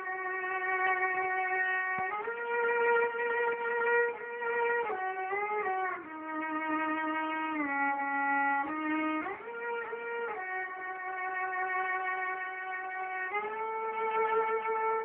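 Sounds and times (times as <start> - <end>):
solo violin slow melody: 0.0 - 15.0.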